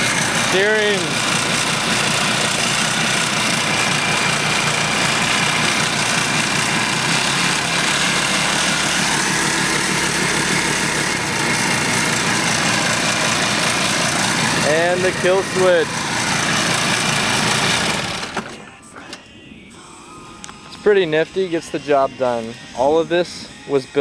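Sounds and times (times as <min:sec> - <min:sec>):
small outboard motor running: 0:00.0 - 0:18.5.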